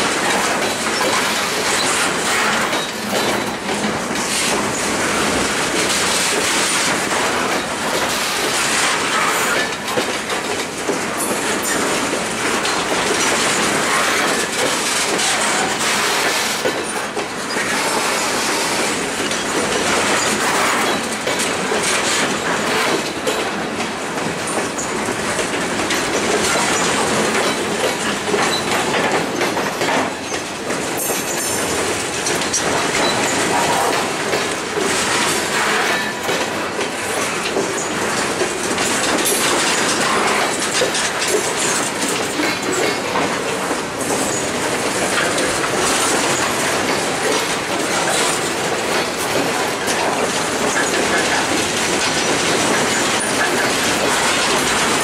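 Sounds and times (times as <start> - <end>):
freight train wheels clacking on rail: 0.0 - 55.0.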